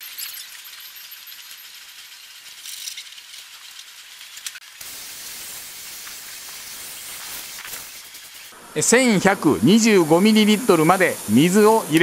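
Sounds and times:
thin hiss: 0:01.9 - 0:12.0
hose spray hitting car: 0:04.8 - 0:08.6, 0:09.2 - 0:12.0.

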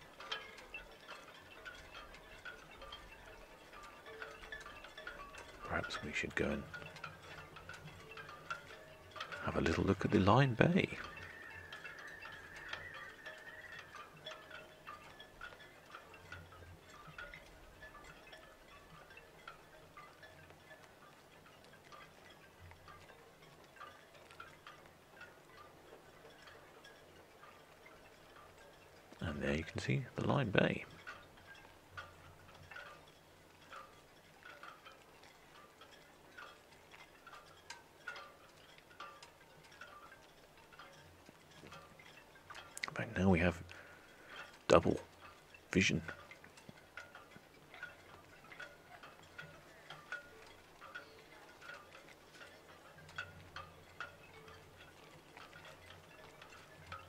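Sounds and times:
faint chime-like tinkling: 0:00.0 - 0:57.0.

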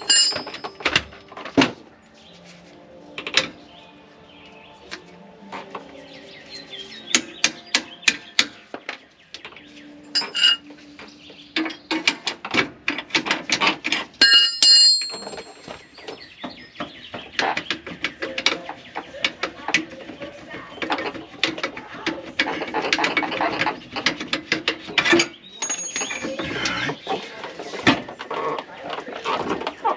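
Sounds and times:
metal tools clinking: 0:00.0 - 0:01.6, 0:10.1 - 0:10.8, 0:14.2 - 0:16.0, 0:25.0 - 0:26.9.

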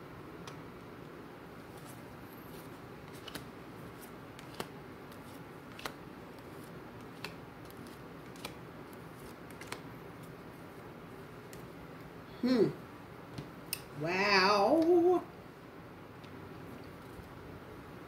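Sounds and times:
cards clicking on a table: 0:03.1 - 0:03.5, 0:04.4 - 0:08.6, 0:09.5 - 0:09.8.

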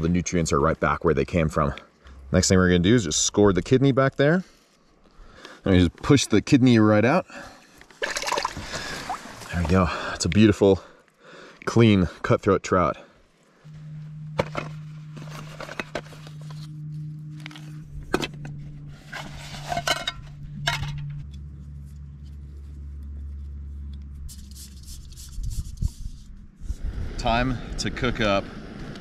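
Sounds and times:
low steady hum: 0:00.0 - 0:29.0.

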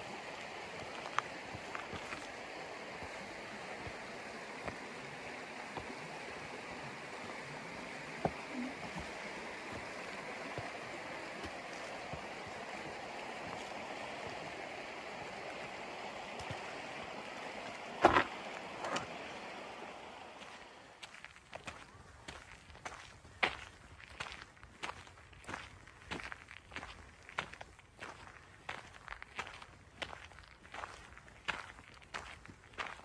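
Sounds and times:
creek water rushing: 0:00.0 - 0:21.2
footsteps on rocky trail: 0:00.0 - 0:33.0.

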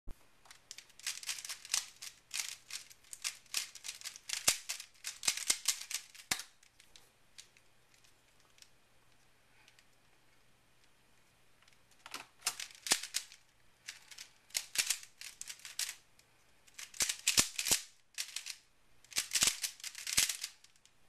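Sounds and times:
puzzle cube clicking and rattling: 0:00.5 - 0:08.7, 0:12.0 - 0:16.0, 0:16.7 - 0:20.8.

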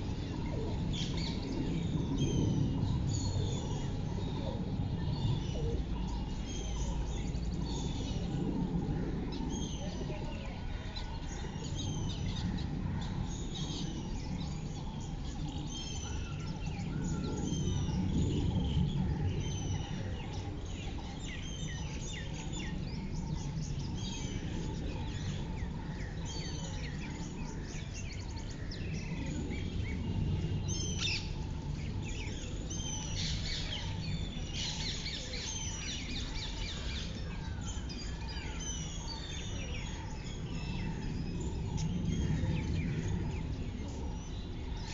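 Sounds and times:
low background rumble: 0:00.0 - 0:44.9
small birds chirping: 0:00.0 - 0:44.9.

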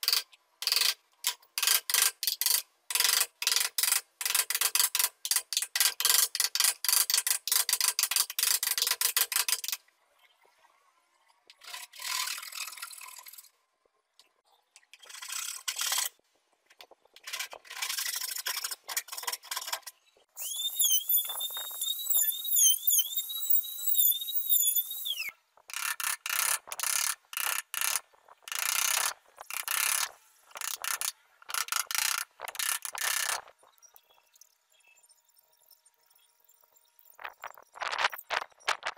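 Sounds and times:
steel point scratching wood: 0:17.2 - 0:33.6
high wavering squeak: 0:20.4 - 0:25.4.

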